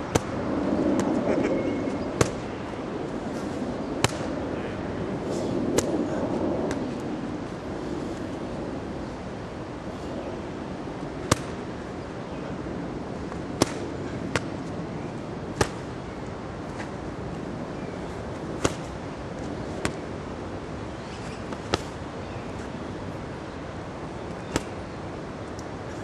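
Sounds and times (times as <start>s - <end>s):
wind noise: 0.0s - 26.0s
punches smacking a training pad: 2.2s - 2.4s, 4.0s - 4.3s, 11.2s - 11.6s, 13.6s - 14.5s, 15.5s - 15.9s, 18.6s - 19.0s, 21.5s - 22.0s, 24.5s - 24.8s.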